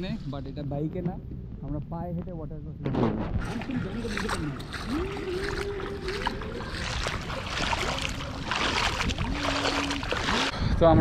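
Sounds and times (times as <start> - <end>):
feet splashing through water: 3.4 - 10.6.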